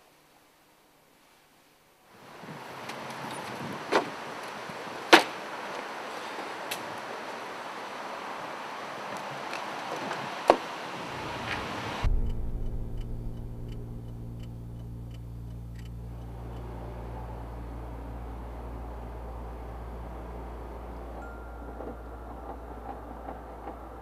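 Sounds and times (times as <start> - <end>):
car engine humming: 10.9 - 24.0
regular ticking: 12.0 - 18.2.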